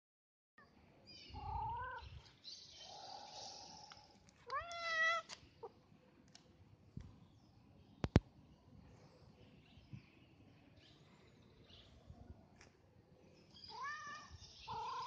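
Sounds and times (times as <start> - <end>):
cat meowing: 4.5 - 5.3, 13.7 - 15.0.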